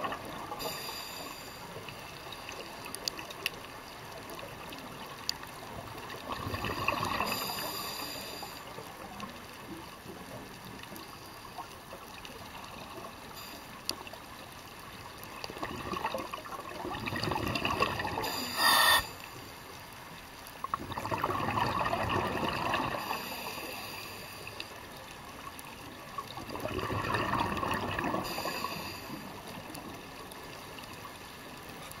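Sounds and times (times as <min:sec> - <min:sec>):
short sharp hiss: 0:00.6 - 0:01.6, 0:18.2 - 0:19.4
exhaled bubbles rushing: 0:15.5 - 0:19.0, 0:20.8 - 0:23.2, 0:26.3 - 0:28.2.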